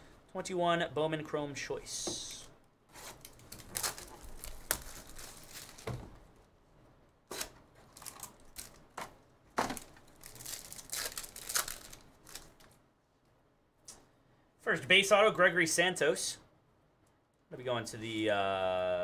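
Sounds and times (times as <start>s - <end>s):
plastic wrap crinkling: 3.0s - 6.2s, 7.3s - 9.0s, 9.6s - 12.8s.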